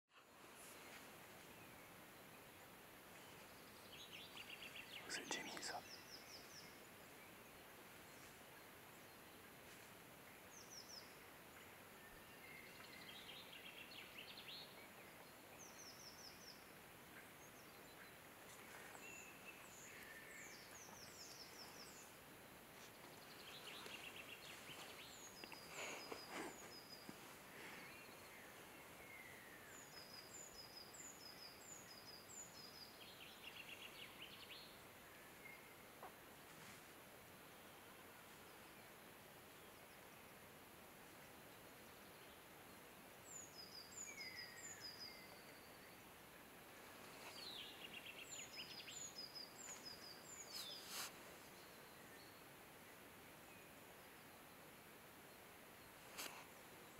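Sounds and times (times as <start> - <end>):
soft background hiss: 0.2 - 56.9
songbirds chirping and trilling: 0.2 - 56.9
brief rustle: 50.5 - 51.2, 56.0 - 56.6.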